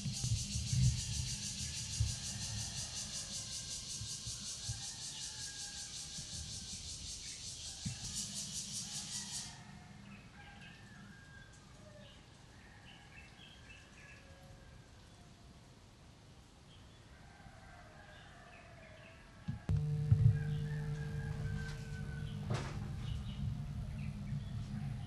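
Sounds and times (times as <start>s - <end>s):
high fast-pulsing buzz: 19.7s - 24.7s.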